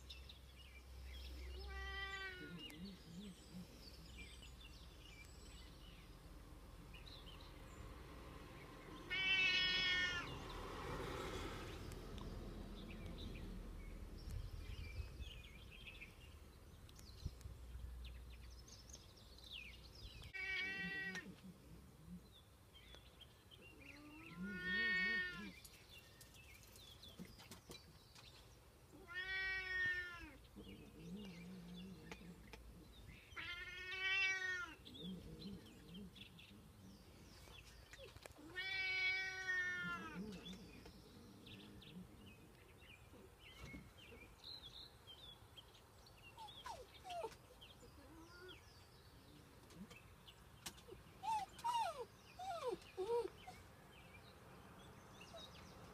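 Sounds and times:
cat meowing: 1.6s - 2.8s, 9.1s - 10.4s, 20.4s - 21.3s, 24.1s - 25.5s, 29.0s - 30.4s, 33.4s - 34.8s, 38.4s - 40.4s.

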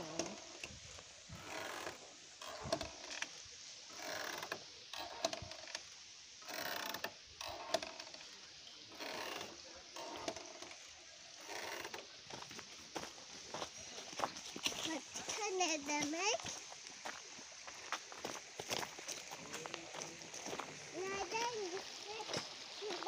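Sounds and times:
swing chains grinding and creaking: 0.0s - 0.8s, 1.4s - 12.5s, 20.5s - 23.0s.

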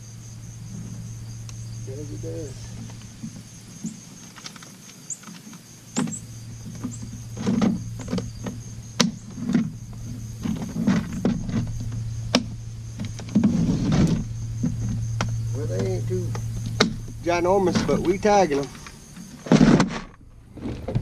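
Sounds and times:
steady low hum: 0.0s - 21.0s
knocks and thuds of boat gear: 6.0s - 21.0s.

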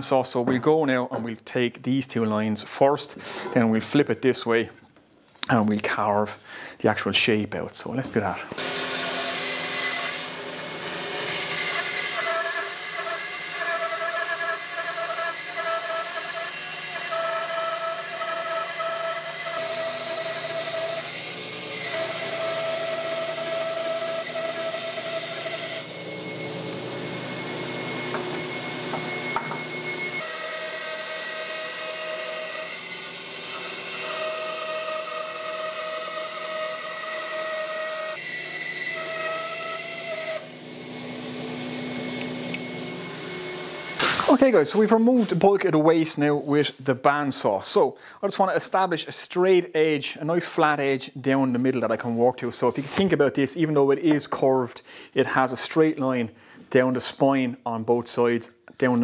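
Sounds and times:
bandsaw cutting wood: 8.5s - 45.4s.

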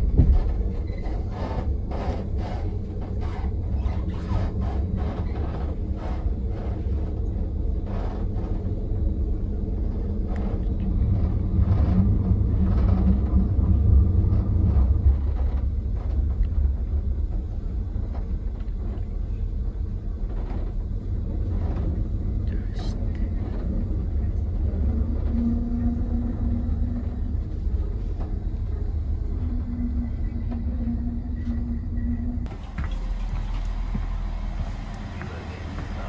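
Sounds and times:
train rumble: 0.0s - 36.0s
wheels clicking over rail joints: 32.4s - 36.0s.

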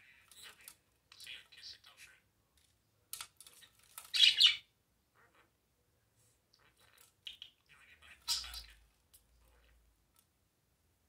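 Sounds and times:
budgerigar chirping: 4.1s - 5.5s, 7.3s - 8.8s.

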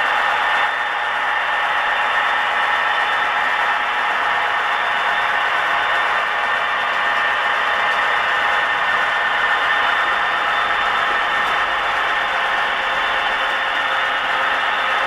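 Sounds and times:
model train whirring and clattering: 0.0s - 15.0s.

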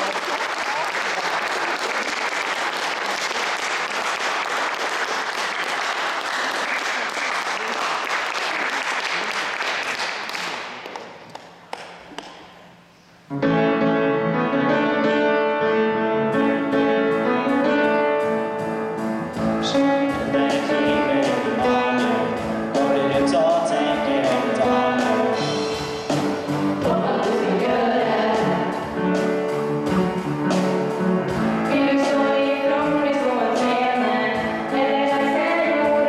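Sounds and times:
audience applauding: 0.0s - 11.9s
instrumental keyboard music: 13.3s - 36.0s.

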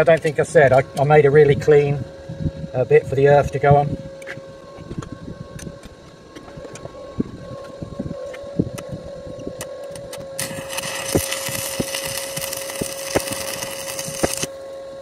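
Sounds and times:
steady hum: 0.0s - 15.0s
arc welder crackling hiss: 8.7s - 14.6s.

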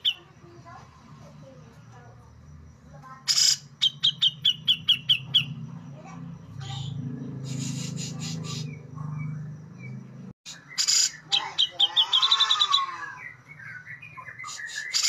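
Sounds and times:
bird singing harsh and high notes: 0.0s - 0.4s, 3.2s - 5.7s, 6.6s - 15.0s.

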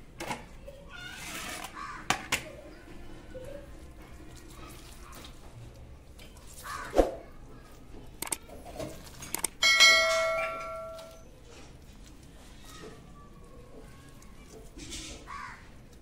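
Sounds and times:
clicks: 8.2s - 8.5s, 9.2s - 9.6s
bright bell chime: 9.6s - 11.2s.

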